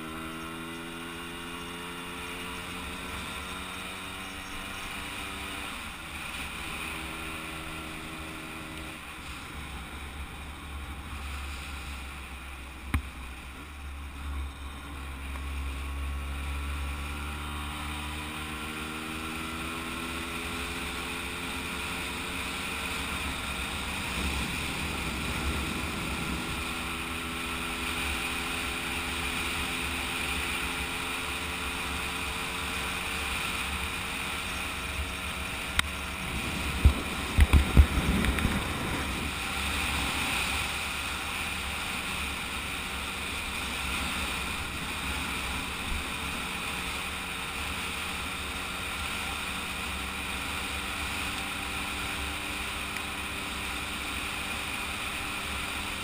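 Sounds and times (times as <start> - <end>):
moped engine running: 0.0 - 56.0
wind rumble on microphone: 23.4 - 27.3, 35.8 - 40.3.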